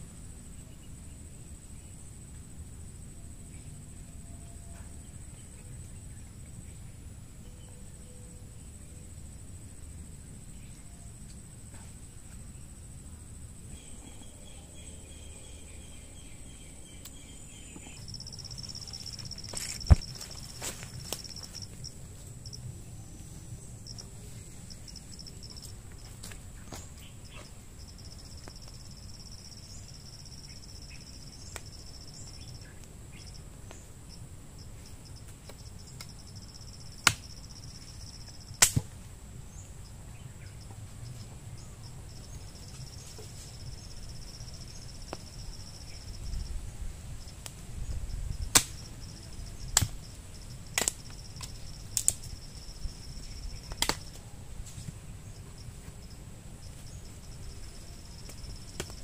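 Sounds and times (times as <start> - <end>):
insects chirring: 0.0 - 59.0
sharp snaps or knocks: 38.6 - 38.9, 48.5 - 48.8, 50.8 - 52.2, 53.7 - 54.2.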